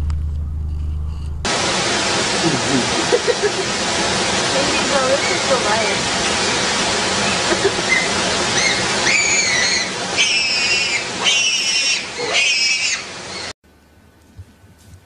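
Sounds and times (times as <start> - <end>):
chimpanzees screaming: 7.2 - 13.5.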